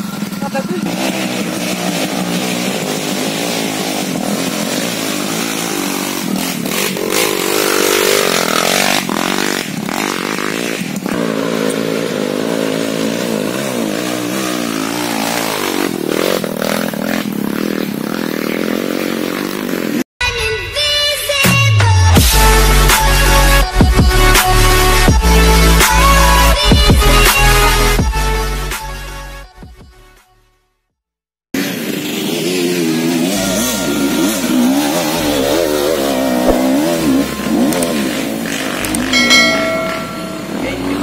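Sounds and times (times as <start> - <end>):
dirt bike engine revving: 0.0 - 20.1, 31.6 - 41.0.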